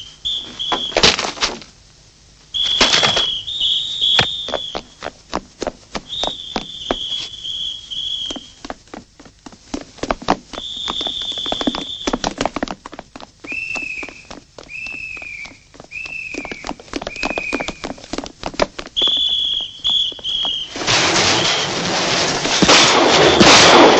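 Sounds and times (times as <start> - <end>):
running footsteps on stone: 0.0 - 1.8, 2.5 - 20.8
shrill high tones: 2.6 - 4.9, 6.1 - 8.6, 19.0 - 21.7.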